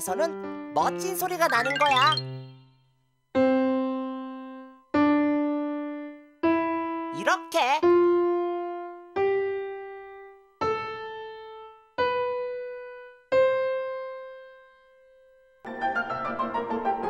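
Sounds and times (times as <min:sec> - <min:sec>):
fast piano passage: 0:15.7 - 0:17.0.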